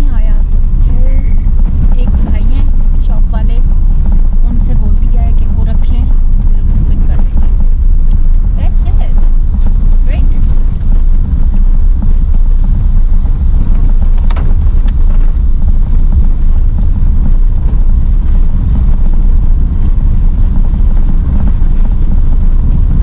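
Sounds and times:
car engine and road noise: 0:00.0 - 0:23.0.

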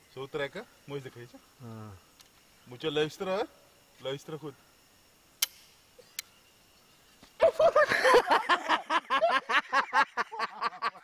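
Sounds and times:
light click: 0:05.4 - 0:06.4
person laughing loudly: 0:07.4 - 0:11.0.

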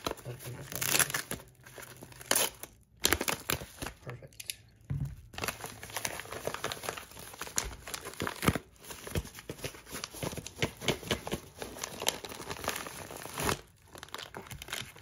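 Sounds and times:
plastic packaging crinkling: 0:05.3 - 0:15.0.

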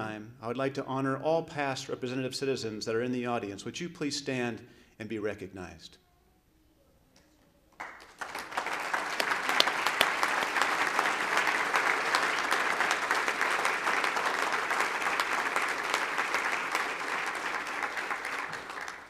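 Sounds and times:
audience applauding: 0:07.8 - 0:19.0.

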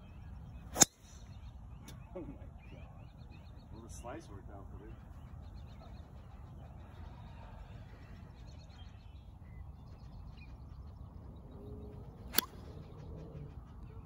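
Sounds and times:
low background rumble: 0:00.0 - 0:14.0
golf club striking ball: 0:00.8 - 0:01.3, 0:12.3 - 0:12.6.

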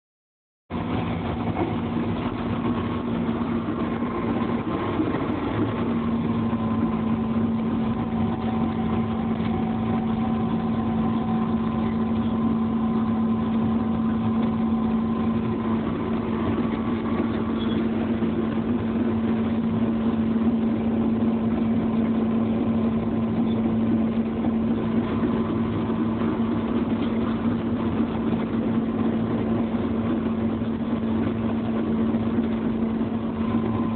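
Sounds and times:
excavator diesel engine droning: 0:00.7 - 0:33.9.

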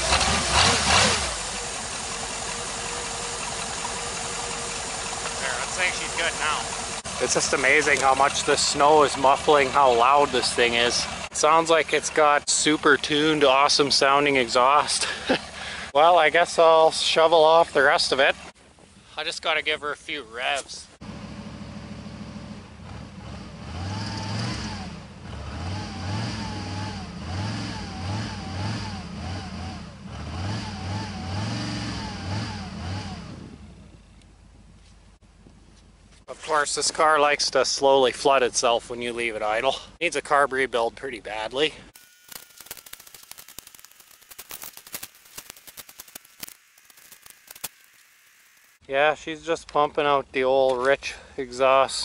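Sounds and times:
car engine idling and revving: 0:00.0 - 0:13.0, 0:21.0 - 0:36.3
snow shovel crunching snow: 0:42.0 - 0:48.8.

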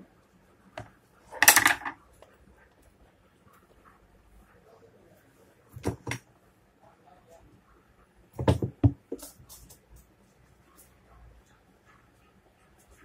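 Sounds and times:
metal parts knocking on wooden bench: 0:01.3 - 0:02.0, 0:05.8 - 0:06.2, 0:08.4 - 0:09.2
metal parts clattering: 0:01.4 - 0:01.9.

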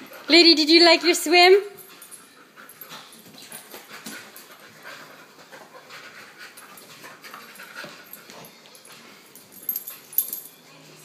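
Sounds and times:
dog panting: 0:01.7 - 0:10.2.

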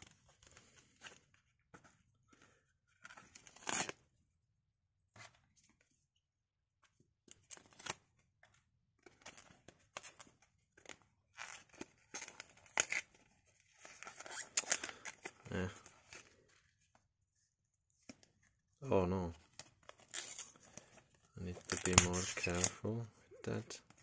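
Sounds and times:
packet tearing open: 0:03.4 - 0:04.0, 0:13.8 - 0:15.4, 0:21.5 - 0:22.8.

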